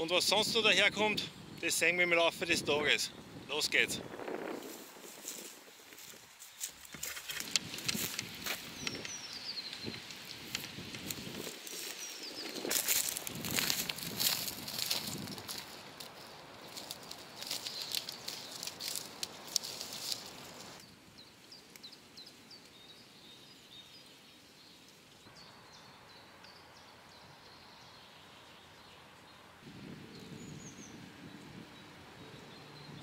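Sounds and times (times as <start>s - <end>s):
small birds chirping: 0.0s - 33.0s
footsteps crunching dry leaves: 4.1s - 8.9s, 9.6s - 20.8s.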